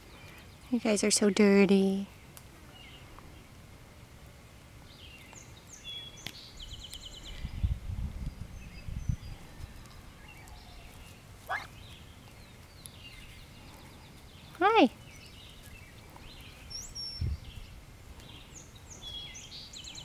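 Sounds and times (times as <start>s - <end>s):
low rumble on microphone: 6.6s - 10.9s
young turkeys chirping: 9.5s - 13.4s
turkey sliding peep: 11.4s - 11.8s.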